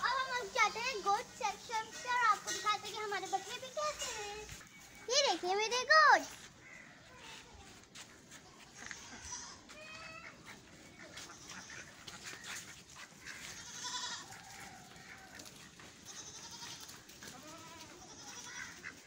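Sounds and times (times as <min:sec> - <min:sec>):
goats bleating: 0:11.1 - 0:12.2, 0:13.2 - 0:19.0.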